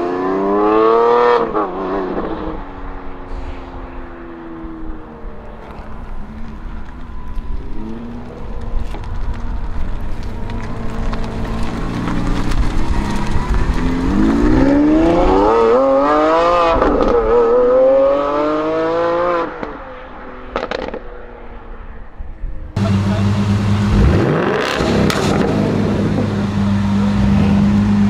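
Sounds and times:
car engine revving and accelerating: 0.0 - 3.1, 10.2 - 19.8, 22.8 - 28.0
exhaust crackles: 5.5 - 16.0, 22.8 - 28.0.

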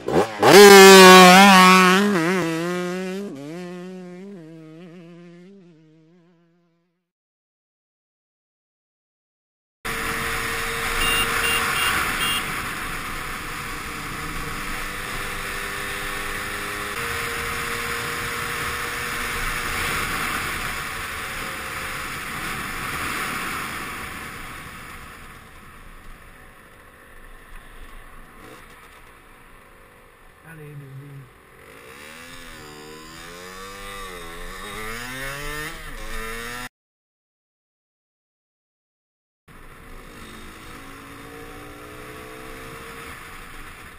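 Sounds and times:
short beeps: 11.0 - 12.4.

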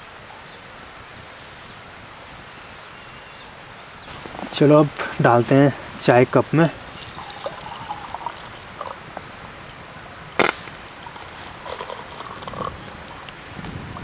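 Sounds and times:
tea pouring into a ceramic mug: 6.8 - 9.0
tea pouring into a metal mug: 6.8 - 9.0, 11.0 - 12.8.

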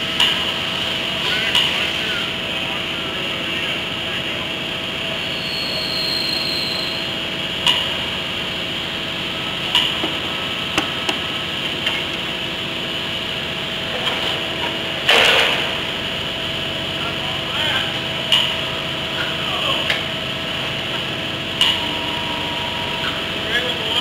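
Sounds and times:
steady mechanical hum: 0.0 - 24.0.

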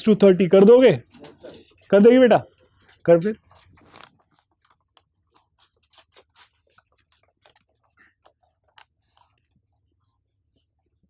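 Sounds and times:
small clicks and ticks: 2.6 - 9.6.

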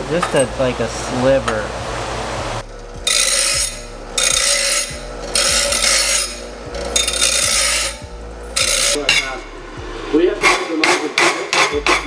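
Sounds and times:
hand file rasping: 3.1 - 9.1, 10.4 - 12.0.

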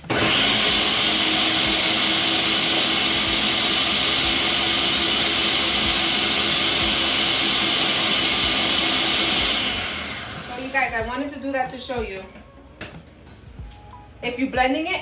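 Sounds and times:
blender motor whirring: 0.0 - 10.8.

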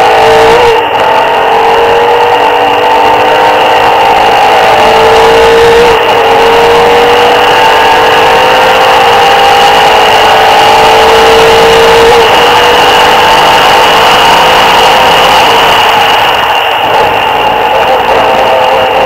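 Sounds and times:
car engine at full throttle: 0.0 - 19.0.

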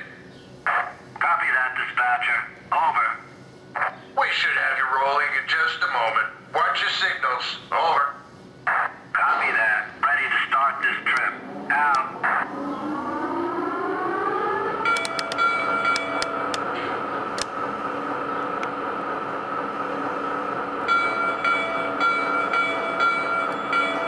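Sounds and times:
rising electric whine: 10.8 - 22.1.

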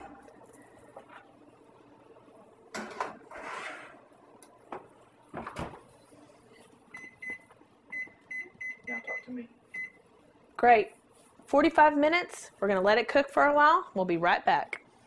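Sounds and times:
pan scraping: 3.1 - 4.1.

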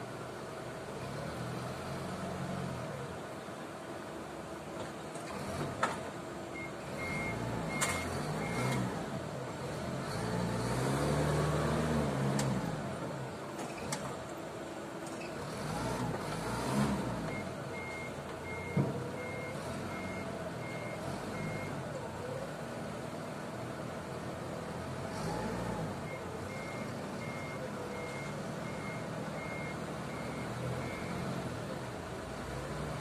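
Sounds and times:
forklift engine revving: 6.6 - 13.2, 15.2 - 21.9, 24.3 - 33.0.

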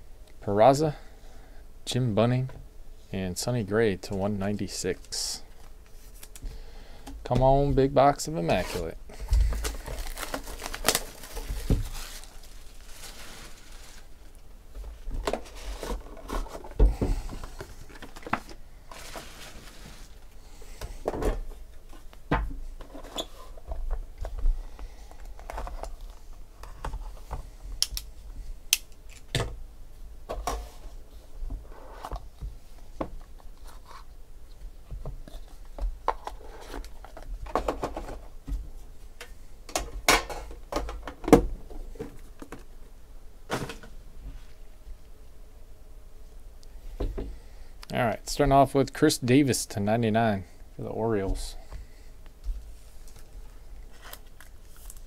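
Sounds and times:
plastic wrap crinkling and tearing: 9.5 - 14.3, 53.9 - 55.0.

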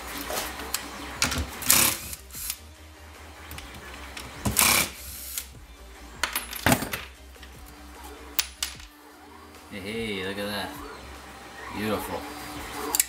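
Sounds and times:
power screwdriver whirring: 4.5 - 5.5.

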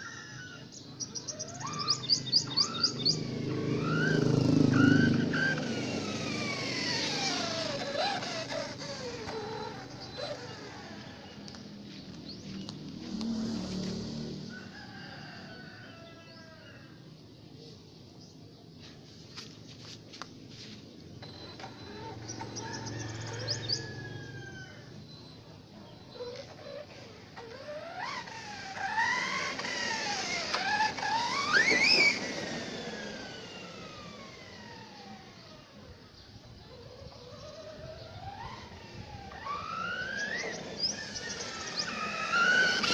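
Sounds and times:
rooster crowing: 0.0 - 0.8, 14.3 - 17.1, 21.8 - 25.1
electric motor whining: 1.1 - 14.5, 21.2 - 25.2, 25.8 - 42.9.

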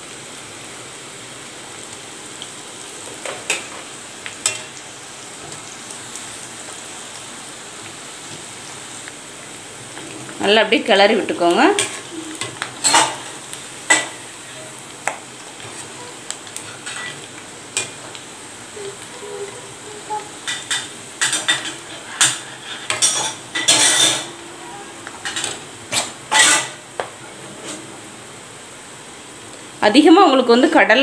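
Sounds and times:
peanuts deep-frying in oil: 0.0 - 27.4
skimmer scraping and clinking on pan: 18.8 - 26.8.

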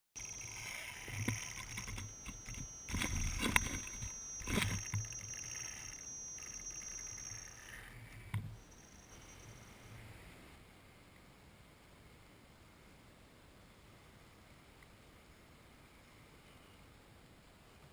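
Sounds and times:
electric motor whine: 0.2 - 10.2.

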